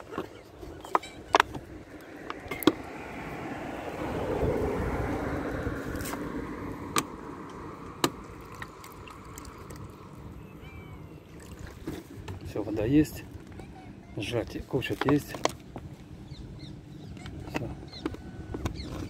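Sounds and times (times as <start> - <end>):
car passing by: 1.9 - 10.3
water poured into plastic cup: 8.3 - 10.2.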